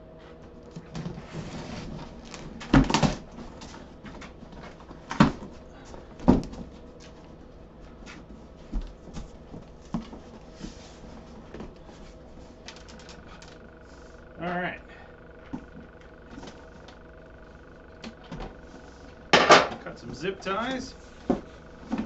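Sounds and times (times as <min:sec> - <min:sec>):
cardboard rustling: 0:00.6 - 0:14.3
cardboard thumps: 0:06.2 - 0:06.7.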